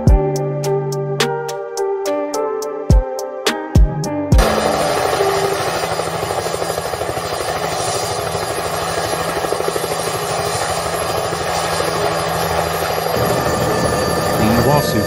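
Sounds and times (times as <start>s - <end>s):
helicopter engine hum: 4.4s - 15.0s
helicopter rotor chopping: 4.4s - 15.0s.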